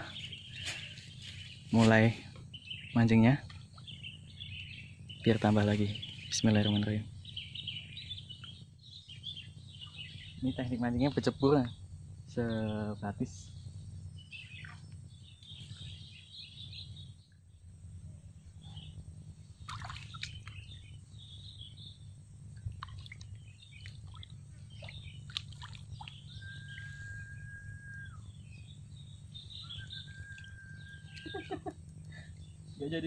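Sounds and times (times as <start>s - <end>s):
low background hum: 0.0s - 33.0s
small birds chirping: 0.0s - 33.0s
long level whistle: 26.3s - 28.4s, 29.6s - 31.3s.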